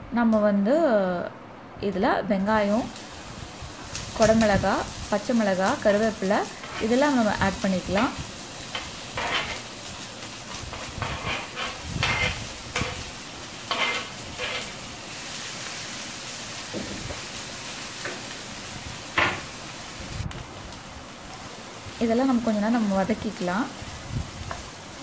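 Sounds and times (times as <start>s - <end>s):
vegetables sizzling in oil: 2.4s - 25.0s
wooden spatula scraping: 6.0s - 14.8s.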